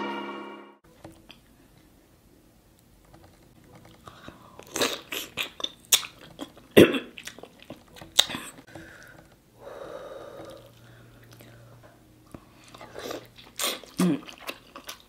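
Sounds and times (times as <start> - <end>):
wet eating smacks: 4.6 - 8.6, 12.3 - 15.0.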